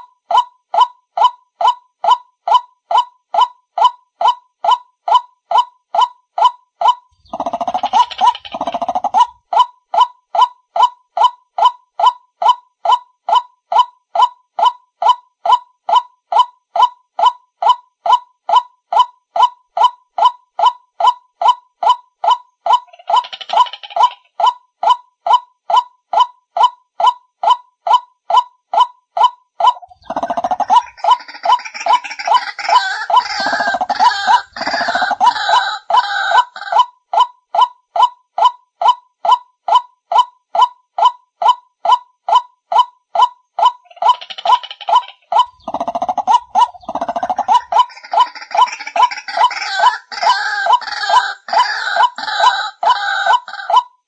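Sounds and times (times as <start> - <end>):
chorus of bird calls: 6.8 - 10.5, 21.4 - 25.0, 29.2 - 37.0, 41.9 - 54.0.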